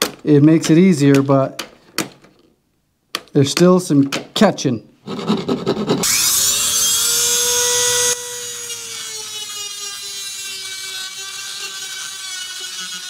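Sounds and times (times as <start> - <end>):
rotary tool whining: 5.1 - 13.0.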